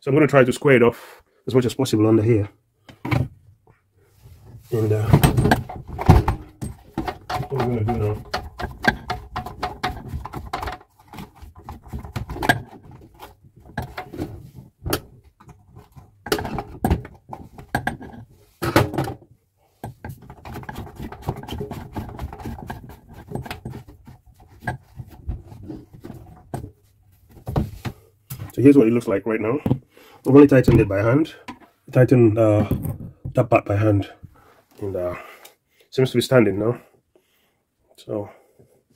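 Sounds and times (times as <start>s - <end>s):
clicks and rattles of parts handled: 5.0s - 28.6s.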